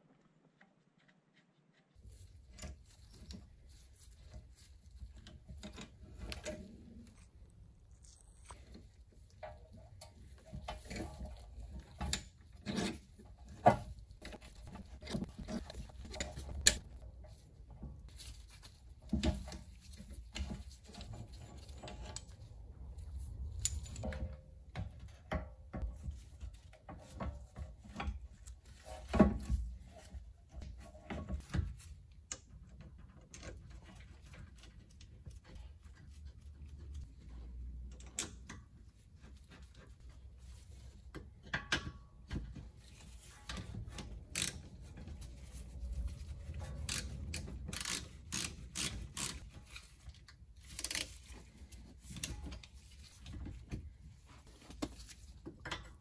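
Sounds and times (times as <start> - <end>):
wrench turning with metal clicks: 44.3 - 44.6, 46.9 - 49.5.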